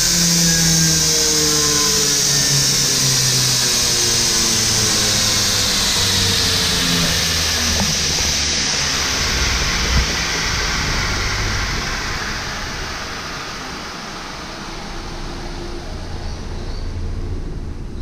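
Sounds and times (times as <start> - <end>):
motor humming: 0.0 - 16.6.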